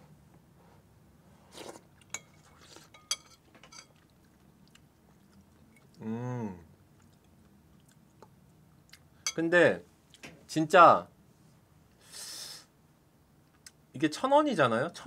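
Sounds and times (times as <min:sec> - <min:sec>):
person chewing: 0:01.5 - 0:03.1, 0:03.8 - 0:06.1, 0:06.9 - 0:09.2
person humming: 0:06.0 - 0:06.7.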